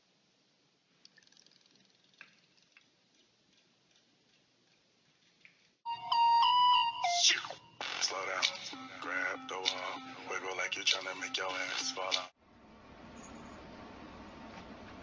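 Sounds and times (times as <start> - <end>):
electronic tone tune: 5.9 - 12.3.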